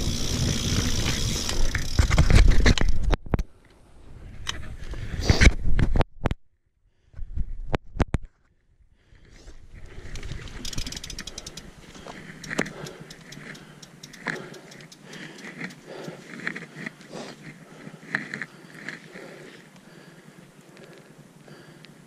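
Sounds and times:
bike freehub ticking rapidly: 0.0 - 2.4, 10.1 - 17.0
clicks and rustles of handling: 10.1 - 19.1.

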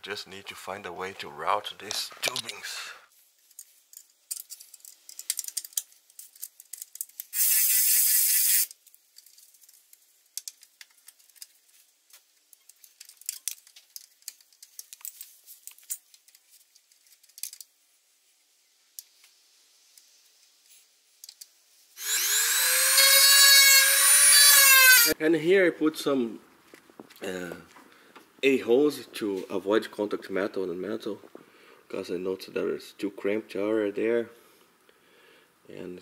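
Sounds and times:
metal tubing and tools clicking: 3.4 - 17.7
electric power tool whirring: 22.0 - 25.2.

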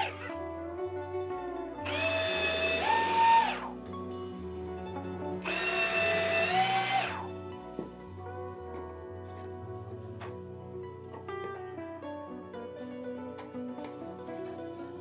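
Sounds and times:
cordless drill whining: 0.0 - 0.3, 1.8 - 3.7, 5.4 - 7.3
background music: 0.0 - 15.0.

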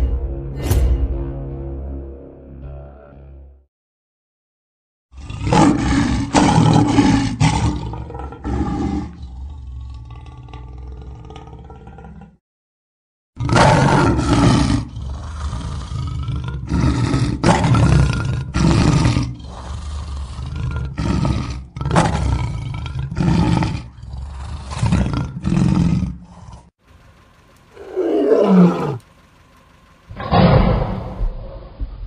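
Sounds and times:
lion roaring: 5.2 - 12.4, 13.4 - 26.7, 27.7 - 29.0, 30.1 - 31.8.

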